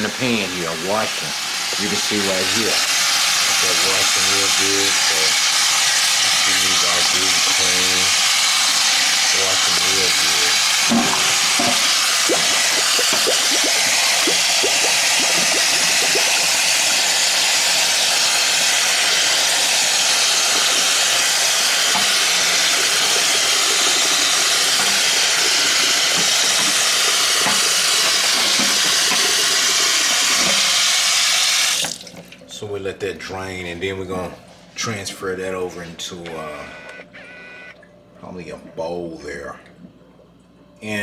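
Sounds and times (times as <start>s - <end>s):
tap running into a colander: 1.6s - 32.4s
water splashing on meat: 11.0s - 30.6s.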